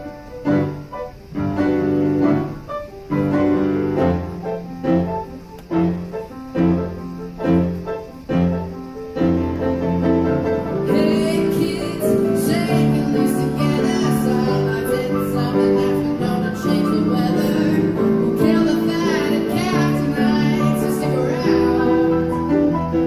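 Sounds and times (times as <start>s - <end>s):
piano chords: 0.0s - 23.0s
person singing: 10.8s - 22.8s.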